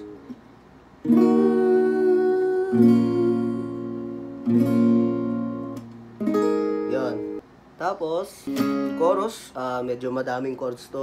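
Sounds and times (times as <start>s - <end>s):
acoustic guitar chords strummed: 0.0s - 7.4s, 8.4s - 9.4s.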